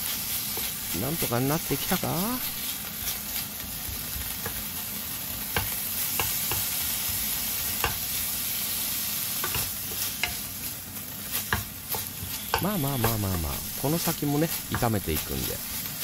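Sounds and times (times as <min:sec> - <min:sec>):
meat sizzling in a frying pan: 0:00.0 - 0:16.0
spatula tapping a pan: 0:03.9 - 0:04.6, 0:05.5 - 0:06.7, 0:07.8 - 0:08.0, 0:09.4 - 0:10.4, 0:11.5 - 0:13.6, 0:14.6 - 0:15.0.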